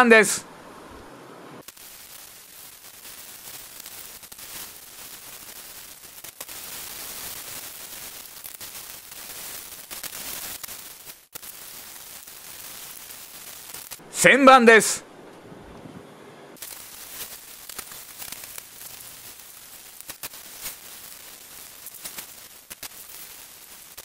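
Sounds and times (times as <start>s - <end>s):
sandpaper scrubbing hiss: 1.6s - 14.0s, 16.6s - 24.0s.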